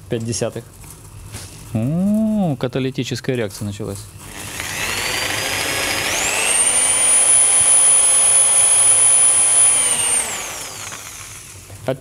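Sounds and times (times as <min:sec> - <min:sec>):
electric drill whine: 0:04.2 - 0:11.8.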